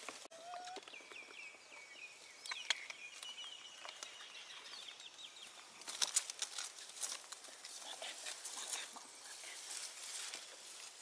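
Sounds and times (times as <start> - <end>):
light clicks and rustles: 5.7 - 8.9.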